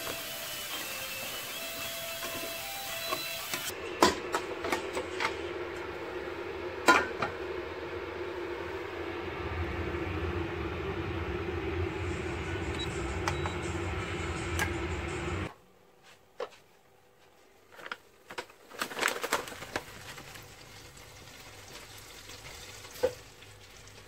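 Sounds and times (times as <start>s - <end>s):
steady low hum: 3.7s - 15.9s
short beeps: 12.7s - 13.8s.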